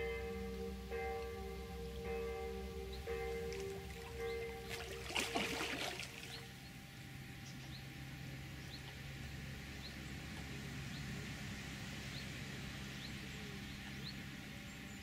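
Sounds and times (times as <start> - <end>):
background music: 0.0 - 6.1
fish splashing at surface: 4.7 - 6.4.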